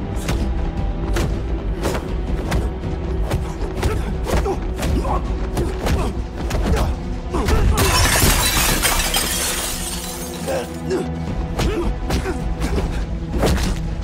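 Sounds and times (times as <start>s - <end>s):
film score music: 0.0s - 14.0s
glass shattering: 7.8s - 10.7s.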